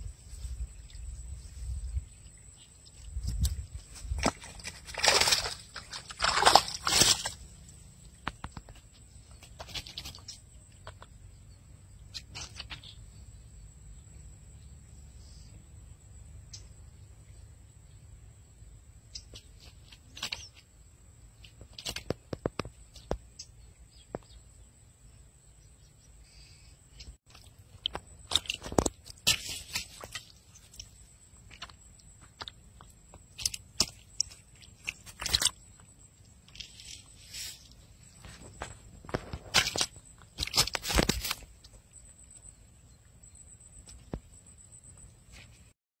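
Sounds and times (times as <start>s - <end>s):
handling clicks and rustles: 2.4s - 11.2s, 27.2s - 42.4s
fish flopping on plastic: 3.3s - 7.6s, 27.3s - 41.6s.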